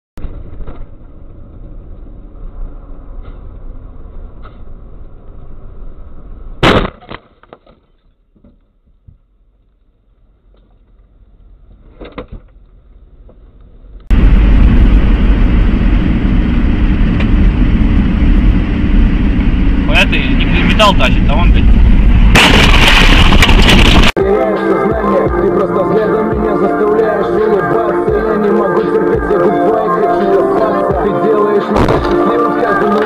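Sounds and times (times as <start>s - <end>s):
vehicle road noise: 0.2s - 6.6s, 9.3s - 24.2s, 25.2s - 33.0s
collision crash: 14.1s - 24.2s, 31.7s - 32.8s.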